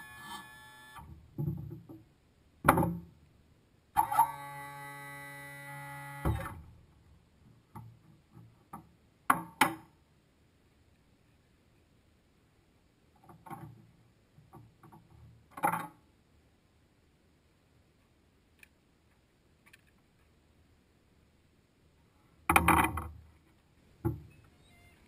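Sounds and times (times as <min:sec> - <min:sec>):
knocks and thumps: 0:01.0 - 0:03.1.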